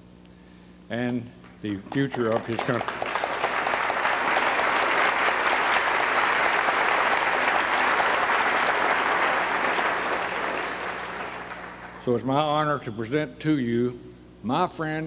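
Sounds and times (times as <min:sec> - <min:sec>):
audience applauding: 0:01.8 - 0:12.3.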